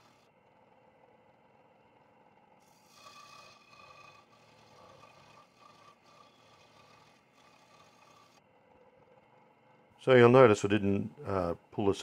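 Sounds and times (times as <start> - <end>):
scroll saw cutting wood: 0.0 - 0.2, 2.6 - 8.4.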